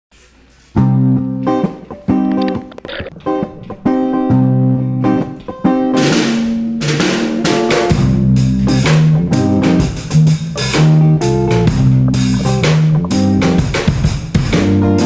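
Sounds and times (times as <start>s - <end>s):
guitar: 0.2s - 15.0s
drum kit beat: 1.6s - 15.0s
bass line: 7.9s - 15.0s.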